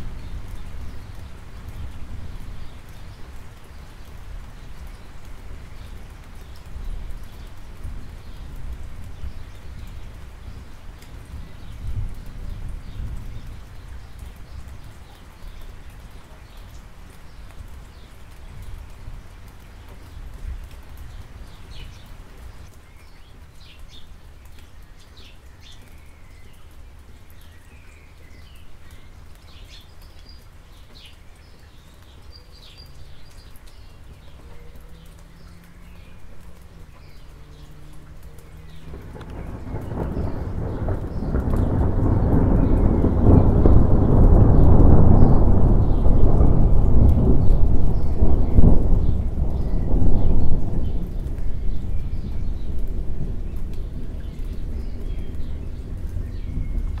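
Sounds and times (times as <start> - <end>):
light rain falling: 0.0 - 57.0
thunder rumbling: 38.6 - 57.0.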